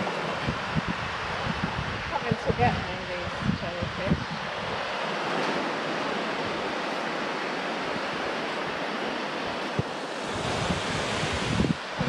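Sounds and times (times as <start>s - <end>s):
small waves breaking on sand: 0.0s - 12.0s.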